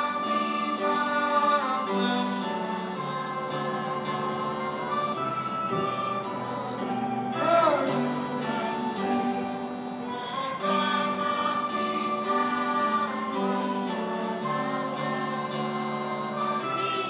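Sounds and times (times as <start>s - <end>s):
children singing: 0.0s - 17.0s.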